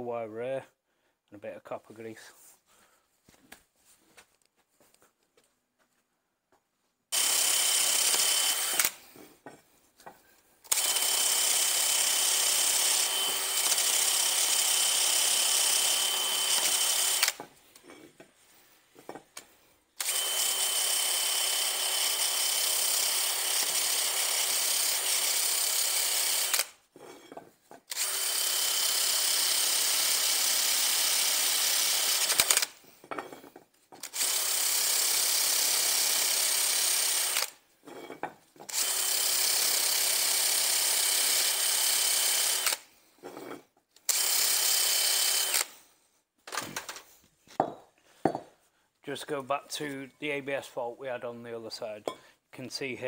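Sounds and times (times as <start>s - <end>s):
drill with wire brush grinding: 7.1s - 9.3s, 10.7s - 18.5s, 19.4s - 45.9s.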